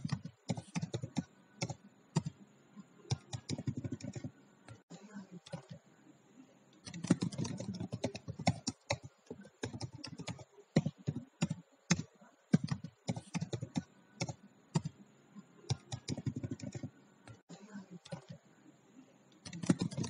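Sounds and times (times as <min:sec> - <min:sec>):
keyboard typing: 0:00.0 - 0:02.4, 0:03.1 - 0:04.8, 0:05.4 - 0:05.8, 0:06.7 - 0:15.0, 0:15.7 - 0:17.4, 0:18.0 - 0:18.4, 0:19.3 - 0:20.0.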